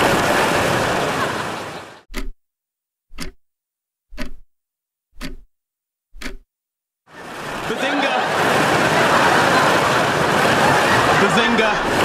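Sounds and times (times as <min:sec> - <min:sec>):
clock ticking: 0:02.1 - 0:02.4, 0:03.1 - 0:03.4, 0:04.1 - 0:04.5, 0:05.1 - 0:05.5, 0:06.1 - 0:06.5.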